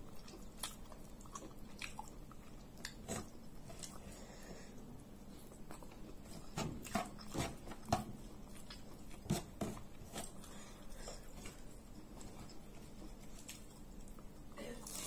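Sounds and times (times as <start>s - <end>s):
chewing and lip smacking: 0.0s - 4.0s.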